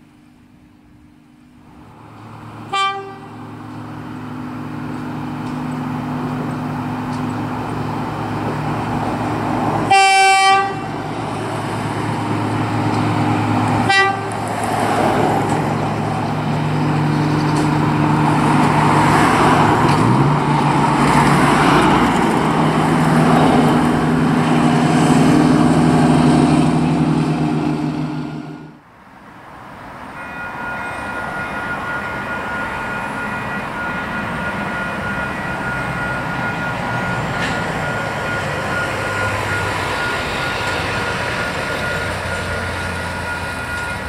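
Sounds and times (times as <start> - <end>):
rail car engine running: 0.0 - 44.0
rail car horn toots: 2.7 - 3.4, 9.8 - 11.0, 13.8 - 14.6.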